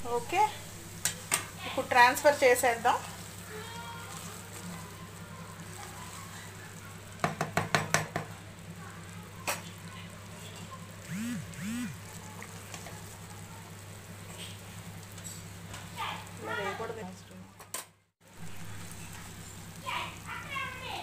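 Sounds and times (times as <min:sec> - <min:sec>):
spatula stirring and scraping a pan: 0:00.0 - 0:11.1, 0:12.0 - 0:17.0
spatula knocking against a pan: 0:07.2 - 0:08.4.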